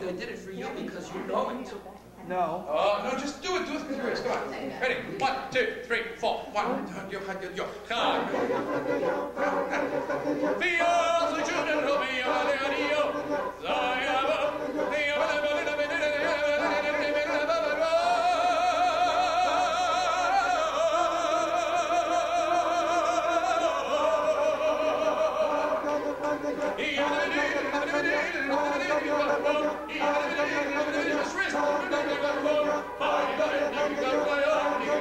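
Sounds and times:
person singing operatically: 0:07.9 - 0:35.0.

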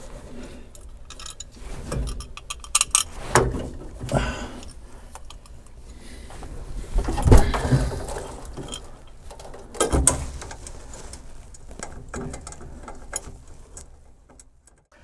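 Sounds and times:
small clicks and rattles of wiring: 0:00.7 - 0:03.1, 0:07.1 - 0:14.9.

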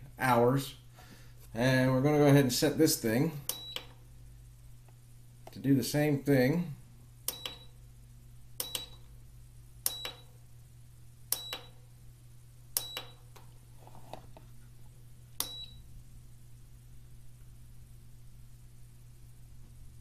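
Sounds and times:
steady low hum: 0:00.0 - 0:20.0
short high beeps with clicks: 0:09.9 - 0:10.3, 0:11.3 - 0:11.8, 0:15.4 - 0:15.8.

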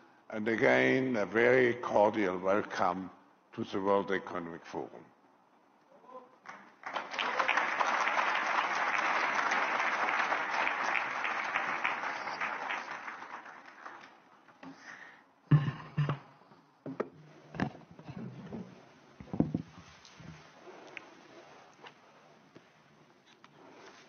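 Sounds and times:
audience applause: 0:06.5 - 0:14.3.

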